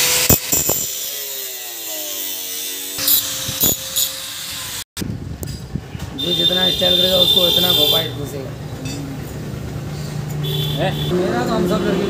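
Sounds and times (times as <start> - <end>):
angle grinder spinning down: 0.0 - 4.8.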